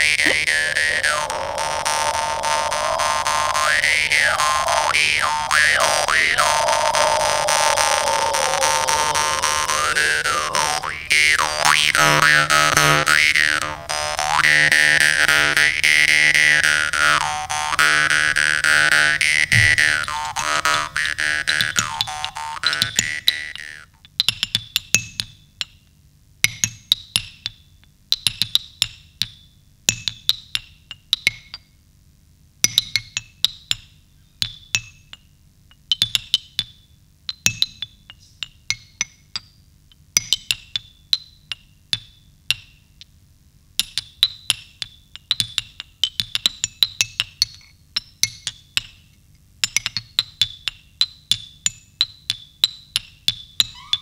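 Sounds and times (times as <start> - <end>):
percussion clicks and knocks: 0.0 - 2.1, 43.8 - 53.8.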